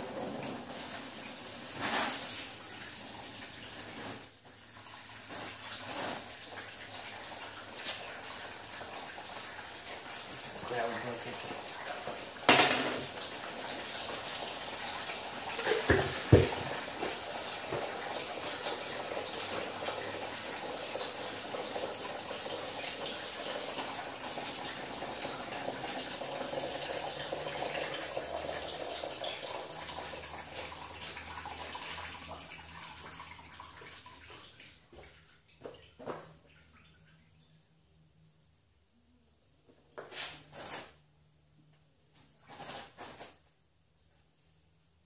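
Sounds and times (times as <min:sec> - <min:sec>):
coolant pouring from radiator: 0:00.0 - 0:35.1.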